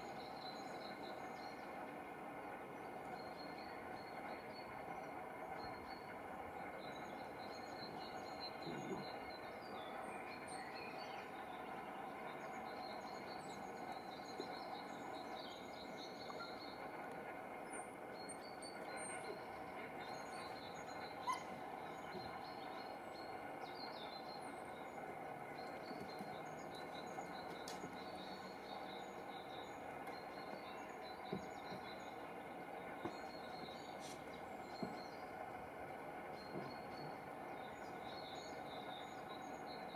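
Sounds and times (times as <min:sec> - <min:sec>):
small birds chirping: 0:02.7 - 0:39.9.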